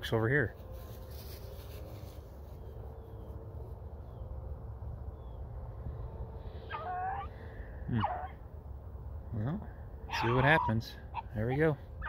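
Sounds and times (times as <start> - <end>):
steady low rumble: 0.0 - 10.2
distant dogs baying: 6.6 - 8.5, 10.0 - 12.0.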